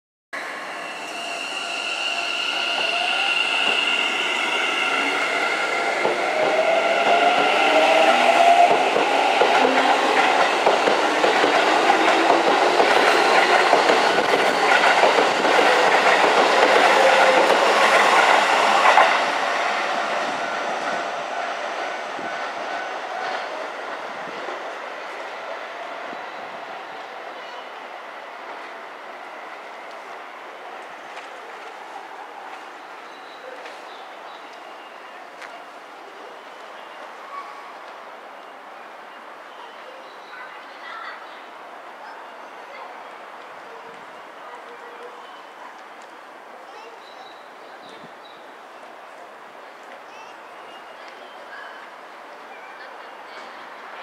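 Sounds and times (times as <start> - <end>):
wheels clacking over rail joints: 8.7 - 19.2.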